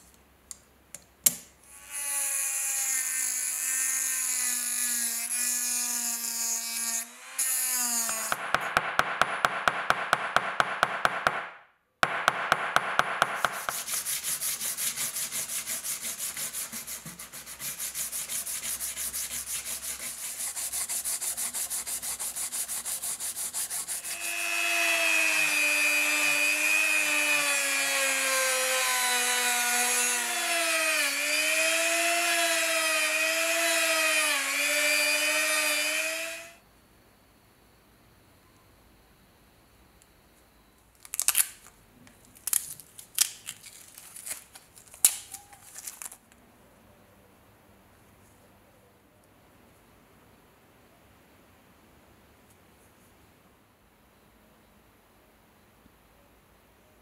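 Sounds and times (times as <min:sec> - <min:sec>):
sandpaper rubbing: 0:13.2 - 0:24.8
rotary tool grinding metal: 0:13.4 - 0:36.6.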